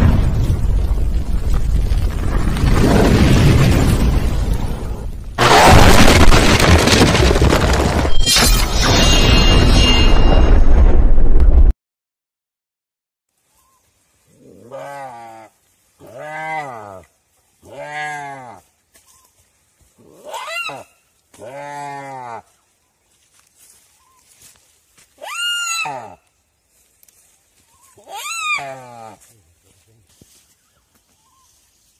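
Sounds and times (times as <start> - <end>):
loud shattering crash: 5.4 - 11.7
high ringing shimmer: 8.1 - 10.6
sharp hit: 8.1 - 11.2
deer bleating in distress: 14.6 - 17.0, 17.6 - 18.6, 20.2 - 22.5, 28.0 - 29.2.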